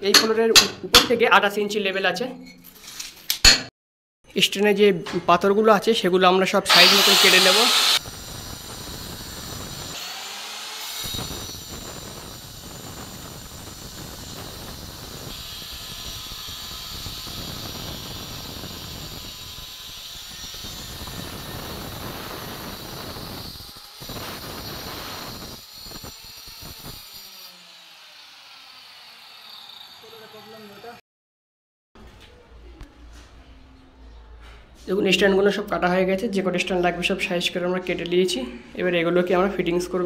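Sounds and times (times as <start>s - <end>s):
electric stone cutter grinding stone: 6.7s - 31.0s.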